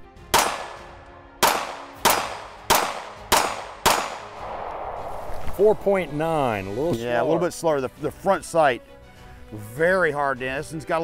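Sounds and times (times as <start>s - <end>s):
pistol shots: 0.3s - 4.4s.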